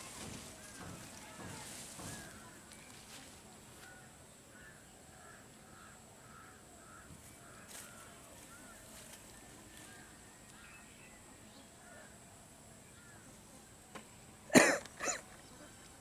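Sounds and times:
faint bird calls: 0.0 - 16.0
person coughing: 14.5 - 15.2.

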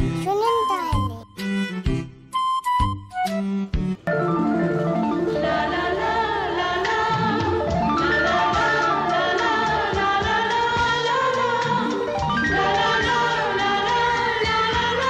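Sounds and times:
background song: 4.2 - 15.0.

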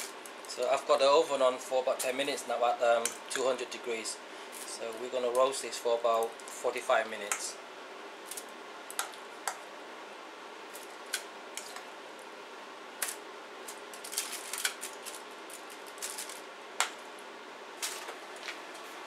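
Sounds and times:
faint room hum: 0.0 - 19.0.

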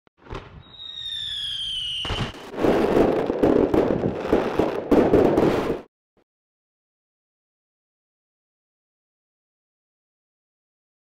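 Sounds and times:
firework crackling and bangs: 0.2 - 5.9
firework whistle sliding down: 0.6 - 2.5
firework whoosh: 0.6 - 5.9.

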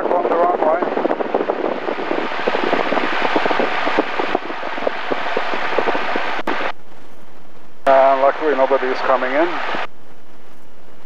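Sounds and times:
propeller plane engine drone: 0.0 - 11.0.

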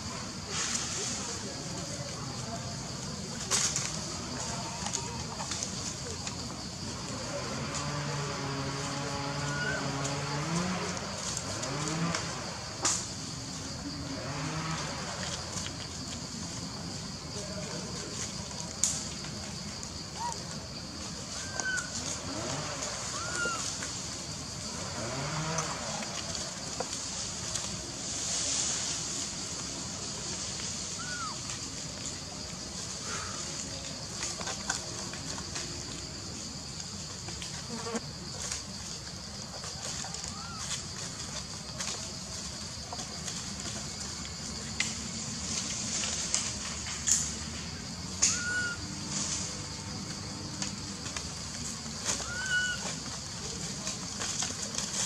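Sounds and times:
steady forest hiss: 0.0 - 55.0
monkeys scrambling over dry leaves: 0.3 - 55.0
steady high hiss: 25.6 - 34.3
branches snapping: 44.2 - 47.4.

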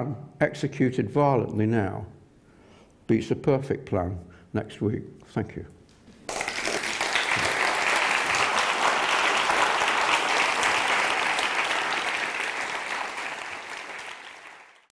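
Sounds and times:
audience applauding: 6.3 - 14.9.

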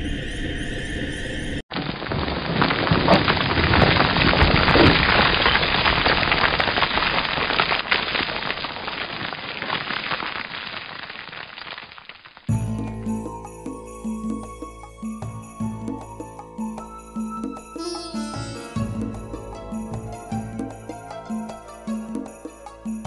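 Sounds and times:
crumbling debris crackle: 1.7 - 12.5.

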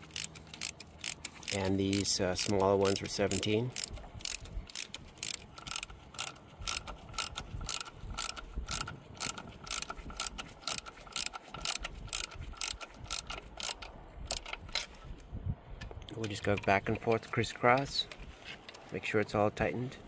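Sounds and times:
socket ratchet clicking: 0.0 - 15.0.

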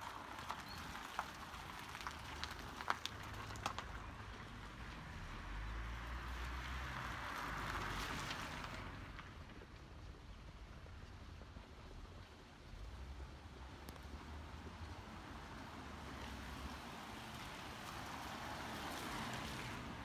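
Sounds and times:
tyre hiss on wet road: 15.5 - 20.0.

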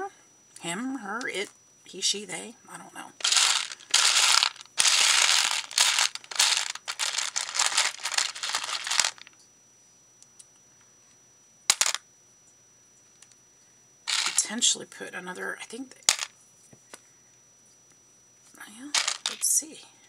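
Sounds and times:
beads clattering in plastic box: 3.2 - 9.3, 11.7 - 12.0, 14.1 - 14.5, 16.1 - 16.3, 18.9 - 19.5.

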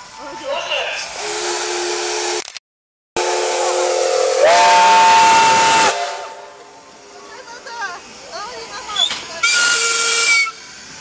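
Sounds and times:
steam locomotive whistle: 1.1 - 2.4, 3.2 - 6.7, 9.4 - 10.7
steam hissing: 3.2 - 11.0.

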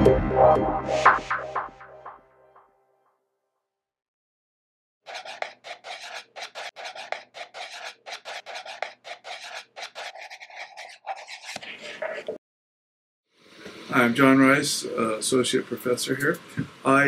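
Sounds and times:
marker scratching on board: 5.1 - 12.4.

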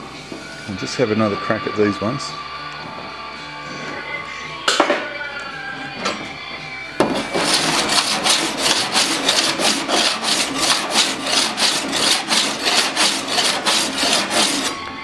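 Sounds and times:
file rasping on steel panel: 7.0 - 15.0.

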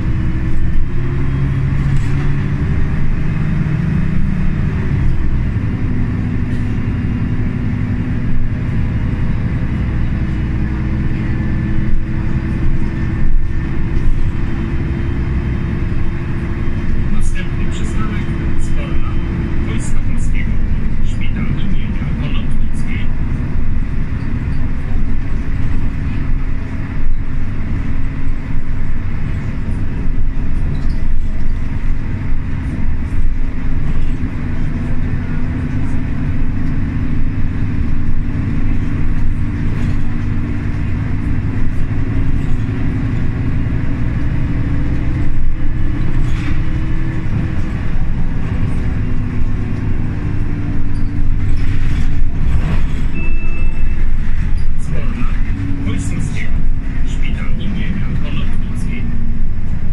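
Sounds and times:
bus diesel engine running: 0.0 - 59.9
road rumble: 0.0 - 59.9
short beep: 53.1 - 54.1.

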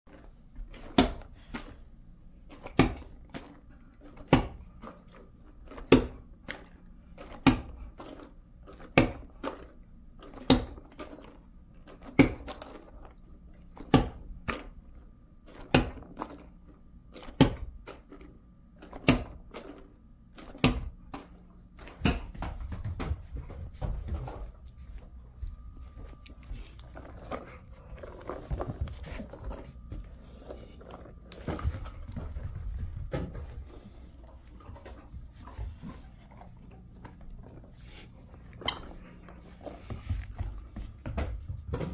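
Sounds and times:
scuffing and rustling: 37.2 - 41.9.

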